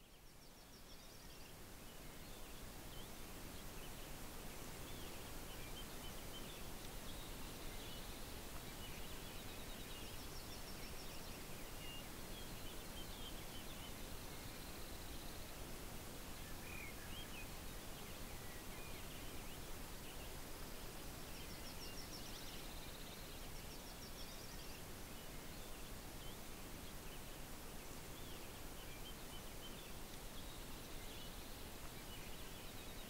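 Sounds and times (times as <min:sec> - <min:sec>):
small birds chirping: 0:00.0 - 0:33.0
steady hiss: 0:00.0 - 0:33.0.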